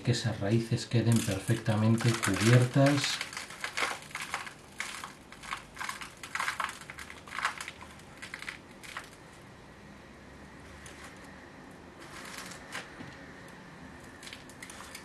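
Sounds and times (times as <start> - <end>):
gritty soil crumbling and trickling: 1.0 - 9.2, 12.0 - 12.9, 14.1 - 15.0.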